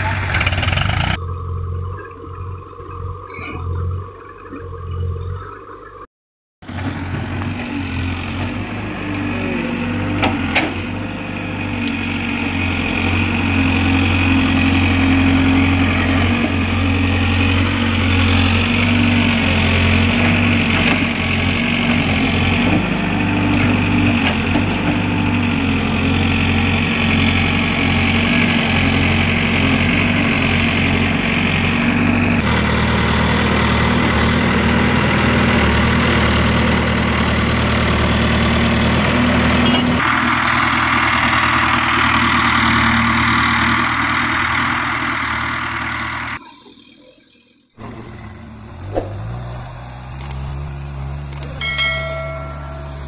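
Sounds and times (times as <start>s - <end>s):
backhoe diesel engine running: 0.0s - 53.0s.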